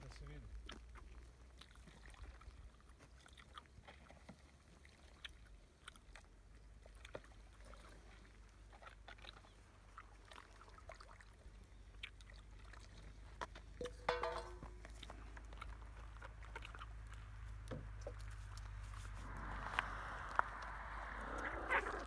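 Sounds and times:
low steady hum: 10.3s - 22.0s.

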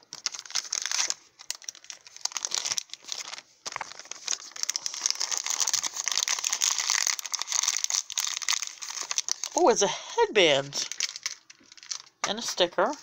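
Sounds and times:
plastic packet crinkling: 0.0s - 9.8s, 10.4s - 13.0s.

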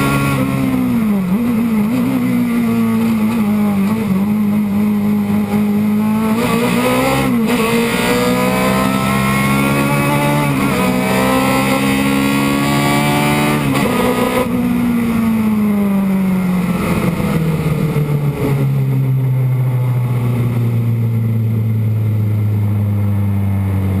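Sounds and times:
race car engine revving: 0.0s - 15.9s.

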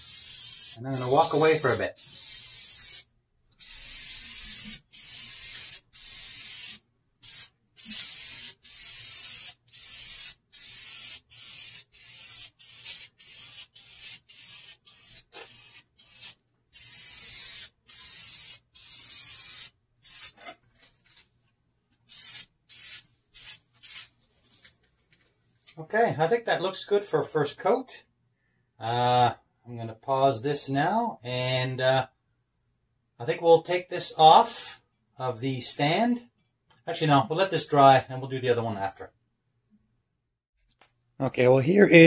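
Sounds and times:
aerosol spray can hissing: 0.0s - 20.4s, 22.1s - 24.1s.

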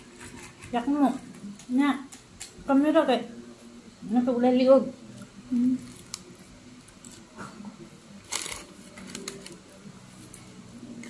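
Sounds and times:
paper wrappers crinkling: 8.2s - 10.5s.

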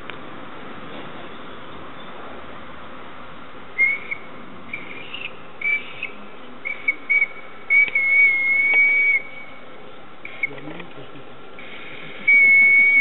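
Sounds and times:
model steamer whistle toots: 3.8s - 9.5s, 12.2s - 13.0s.

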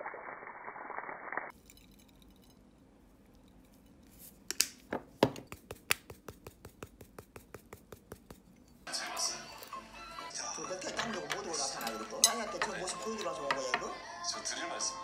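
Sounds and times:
seasoning shaker clicking: 5.4s - 8.9s.

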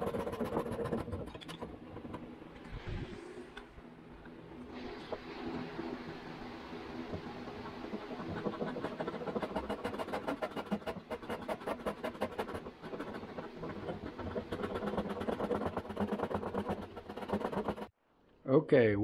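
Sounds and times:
hand saw rasping through wood: 7.9s - 17.9s.

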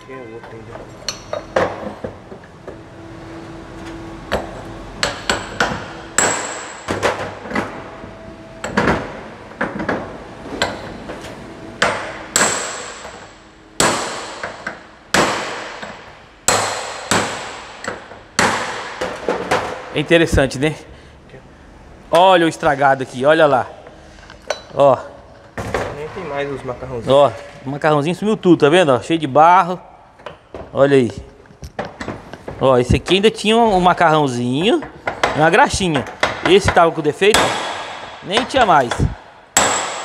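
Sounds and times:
hammer striking steel: 0.0s - 2.8s, 4.3s - 7.9s, 11.8s - 19.8s, 36.0s - 40.0s.

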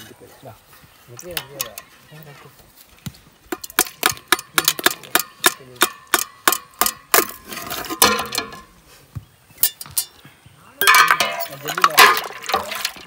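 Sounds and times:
metallic clinks of steel tumbler: 10.8s - 13.0s.

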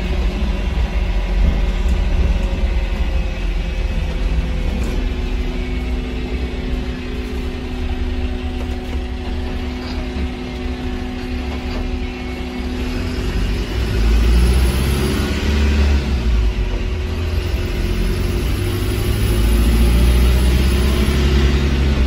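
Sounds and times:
bus drivetrain rumble: 0.0s - 22.0s
steady hum: 0.0s - 22.0s.

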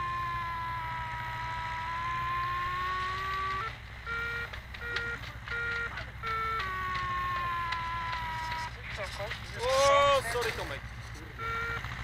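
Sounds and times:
electronic variometer tone: 0.0s - 8.8s, 11.2s - 12.0s
short electronic beeps: 2.2s - 8.7s, 11.4s - 11.9s.

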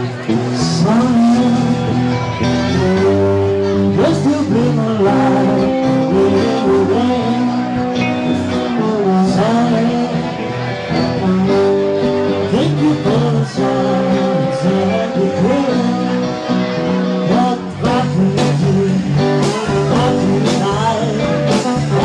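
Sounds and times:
drums: 0.0s - 22.0s
electric guitar: 0.0s - 22.0s
man singing: 0.0s - 22.0s.

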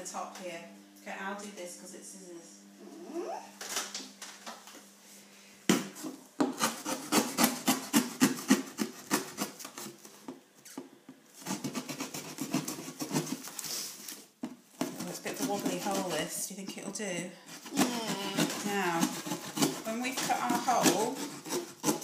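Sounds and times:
scissors puncturing cardboard: 6.4s - 10.0s, 17.6s - 22.0s
scissors sawing through cardboard: 6.4s - 10.0s, 11.4s - 14.2s, 14.8s - 16.4s, 17.5s - 22.0s.

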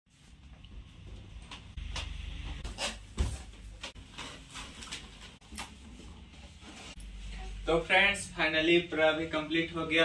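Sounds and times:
balloons rubbing and squeaking: 2.6s - 3.2s.

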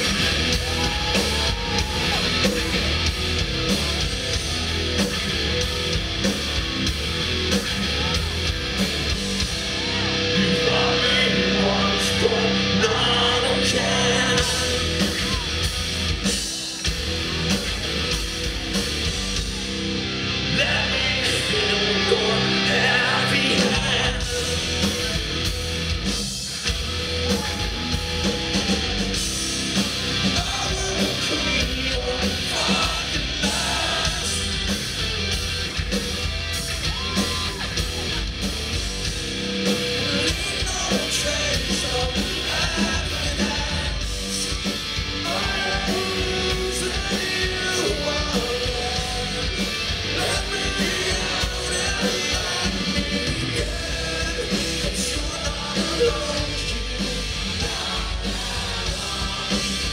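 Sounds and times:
distorted electric guitars: 0.0s - 59.9s
drums: 0.0s - 59.9s
man singing lead vocal: 10.0s - 15.6s, 20.4s - 25.2s, 30.2s - 34.8s, 40.0s - 59.9s.

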